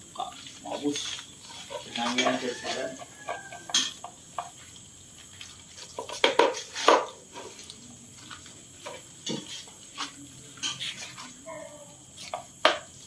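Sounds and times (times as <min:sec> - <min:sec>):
bowls scraping on concrete: 0:00.6 - 0:04.0.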